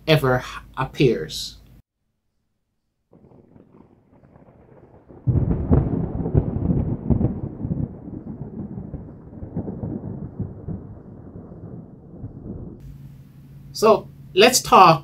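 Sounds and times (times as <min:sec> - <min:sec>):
thunder clap and rumble: 0:03.1 - 0:12.8.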